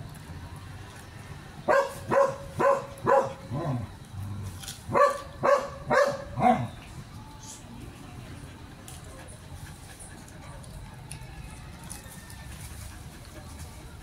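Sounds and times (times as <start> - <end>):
dog barking: 1.7 - 3.8, 4.9 - 6.7.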